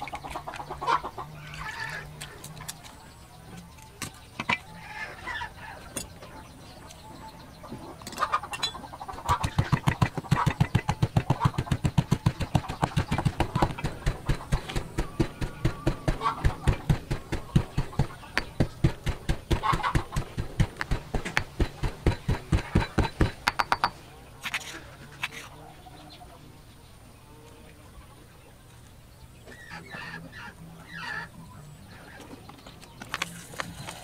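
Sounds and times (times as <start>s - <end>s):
pestle pounding in stone mortar: 9.3s - 24.0s.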